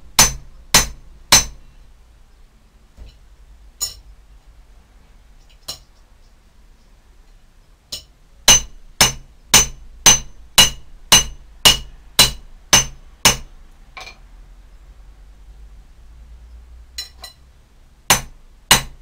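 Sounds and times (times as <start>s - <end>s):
hammer ringing on iron bar: 0.2s - 1.6s, 8.0s - 13.5s.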